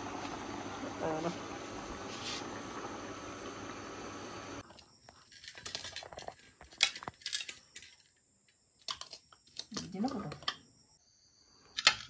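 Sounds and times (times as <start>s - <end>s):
metal spoon clinking and scraping: 5.2s - 8.2s.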